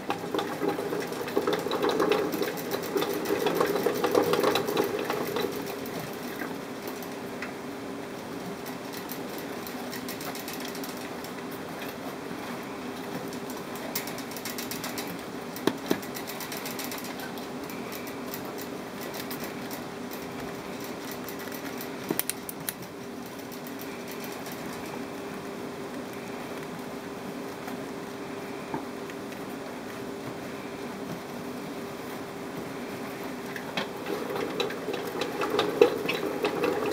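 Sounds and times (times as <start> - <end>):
mechanical hum: 0.0 - 36.9.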